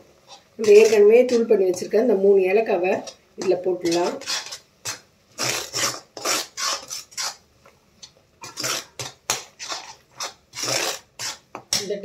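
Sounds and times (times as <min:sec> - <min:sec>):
steel ladle scraping metal pan: 0:00.2 - 0:01.9, 0:02.9 - 0:07.4, 0:08.4 - 0:11.9.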